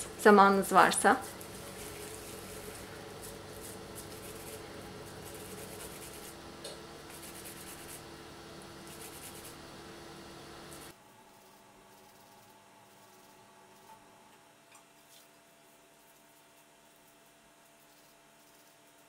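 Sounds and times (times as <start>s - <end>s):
steady low hum: 0.0s - 14.7s
hands rubbing meat mixture: 1.3s - 6.4s.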